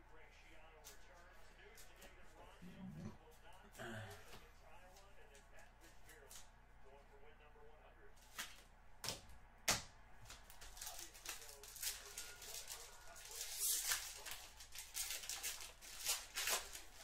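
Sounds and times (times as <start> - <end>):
foil wrapper crinkling and tearing: 10.3 - 17.0.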